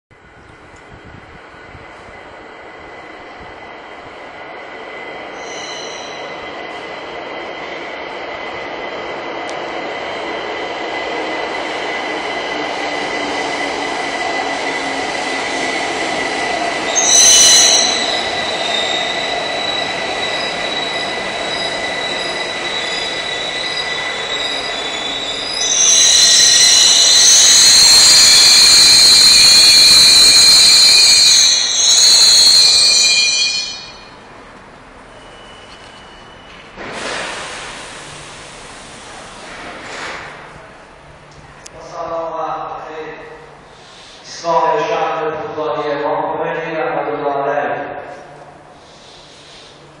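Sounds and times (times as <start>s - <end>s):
metro train running noise: 0.2s - 50.0s
brief high screech: 5.4s - 6.3s, 16.9s - 34.1s.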